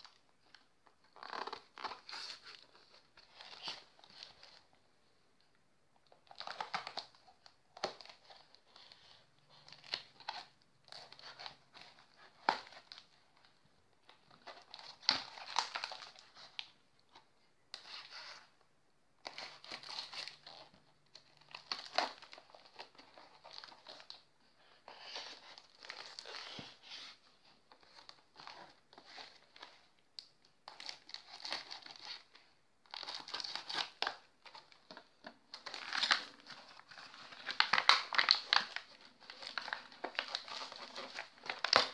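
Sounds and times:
plastic wrap crinkling and tearing: 0.0 - 4.7, 6.1 - 17.2, 19.2 - 41.9.

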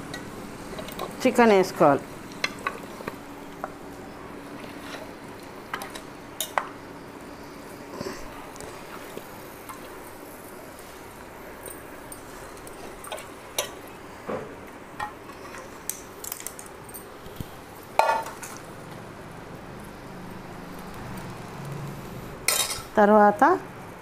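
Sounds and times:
steel utensils clinking on pan: 22.5 - 22.9.

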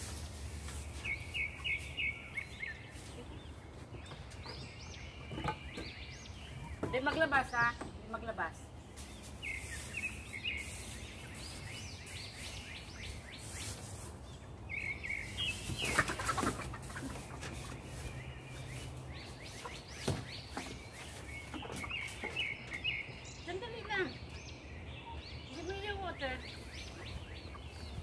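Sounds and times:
straw rustling: 0.0 - 3.6, 8.9 - 22.5
birds chirping: 0.0 - 28.0.

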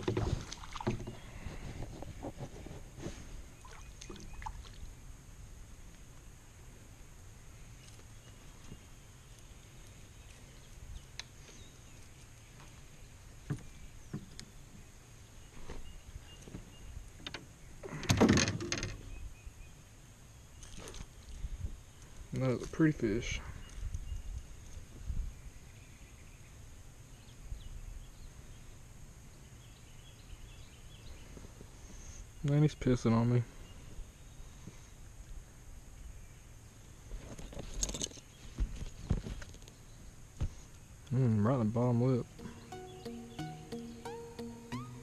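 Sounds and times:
faint steady hiss: 0.0 - 45.0
insect hum: 0.0 - 45.0
birds chirping: 0.2 - 1.7, 3.5 - 4.8, 40.8 - 45.0.

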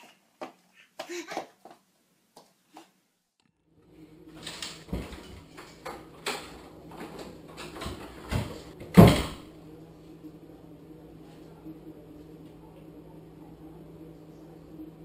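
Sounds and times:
steady low hum: 3.6 - 15.0.

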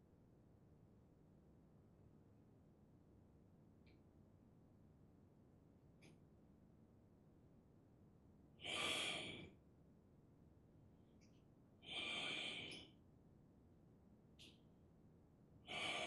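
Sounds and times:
person breathing: 8.6 - 9.6, 11.8 - 13.0, 15.7 - 16.0.

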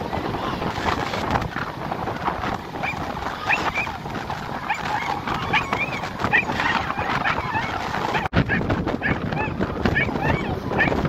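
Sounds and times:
surf: 0.0 - 11.0
wind noise: 0.0 - 11.0
crowd shrieking and yelling: 2.9 - 8.3, 9.1 - 11.0.

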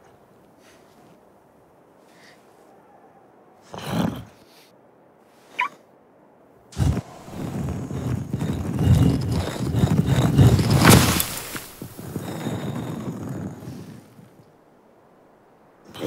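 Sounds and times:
sand pouring: 6.8 - 14.0
stone grinding and rumbling: 6.8 - 14.3.

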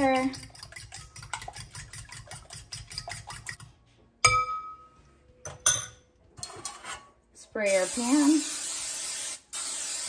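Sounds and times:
fork whisking in glass bowl: 0.0 - 3.7.

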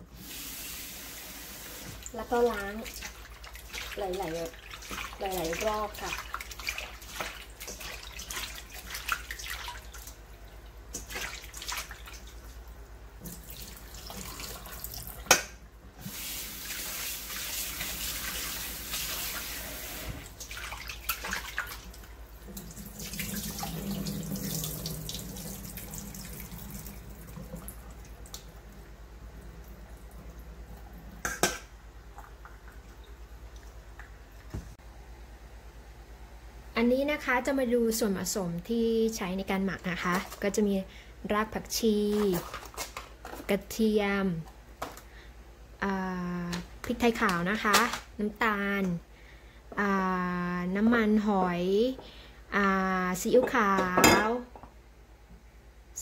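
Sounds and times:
tap water running and splashing: 0.2 - 34.8.

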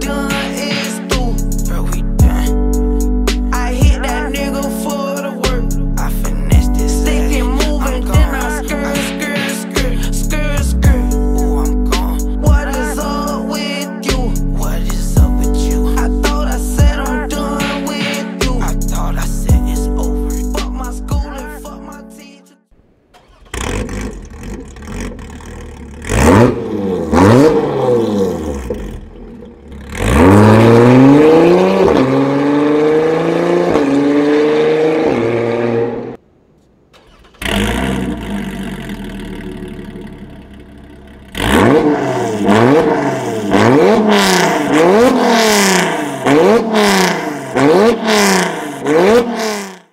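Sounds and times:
sports car engine revving: 23.2 - 36.2, 37.1 - 49.9.

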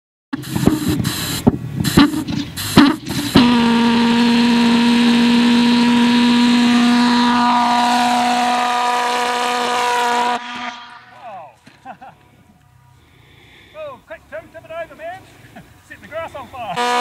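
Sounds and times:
pulse jet engine buzzing: 0.3 - 11.0.

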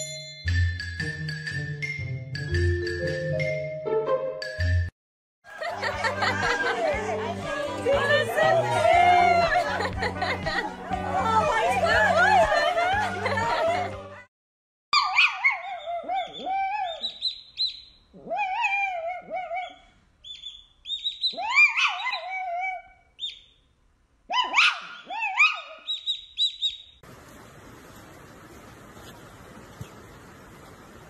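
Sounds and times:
steady hiss: 27.1 - 31.0.

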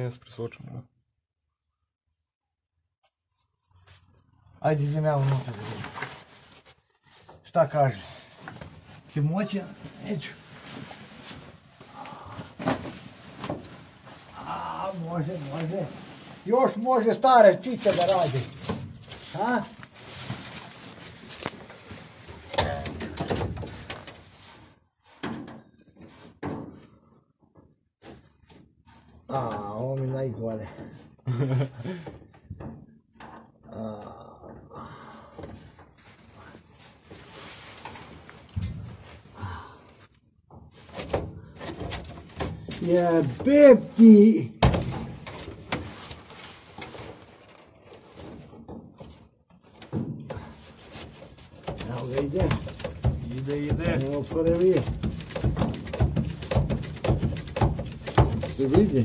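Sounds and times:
clothing rustling on sheet metal: 4.8 - 33.7, 35.0 - 39.4, 40.5 - 59.0
small knocks and scrapes: 5.1 - 7.8, 12.5 - 31.2, 35.5 - 39.3, 40.5 - 59.0
person straining vocal sound: 33.7 - 35.1.

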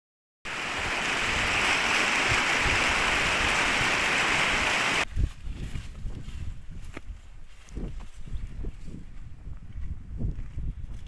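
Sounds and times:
water rushing over rocks: 0.5 - 5.0.

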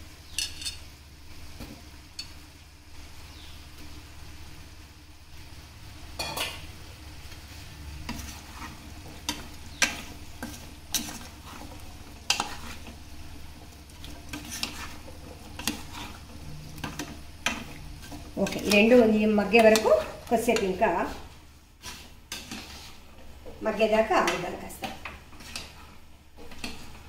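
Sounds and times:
low steady hum: 0.0 - 27.0
plastic spatula scraping a pot: 8.0 - 8.8, 10.4 - 12.9, 14.2 - 16.9, 21.8 - 23.0.

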